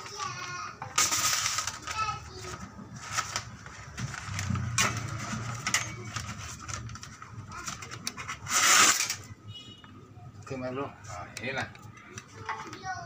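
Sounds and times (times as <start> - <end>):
steel blade scratching paper: 8.2 - 9.2.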